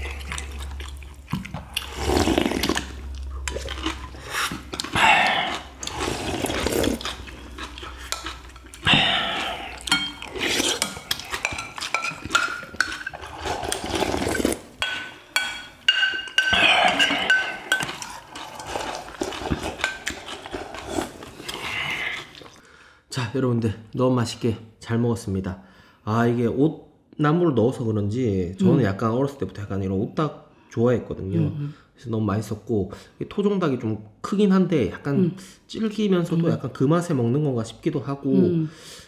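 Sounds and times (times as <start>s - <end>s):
chopsticks clinking against bowls: 7.0s - 13.3s, 14.8s - 21.0s.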